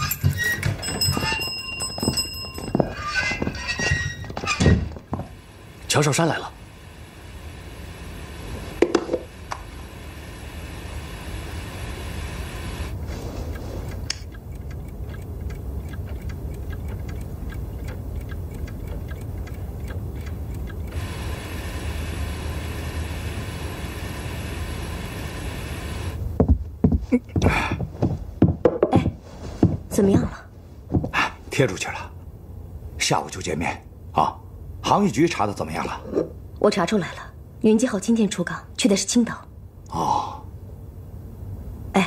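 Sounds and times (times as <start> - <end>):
low steady hum: 0.1 - 42.0
clocks ticking: 13.5 - 21.4.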